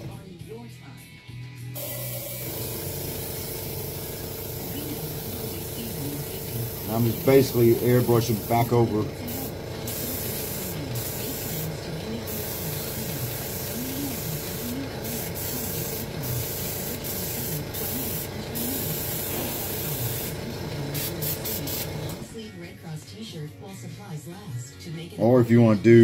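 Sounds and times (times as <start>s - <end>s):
airbrush spraying hiss: 1.8s - 22.1s.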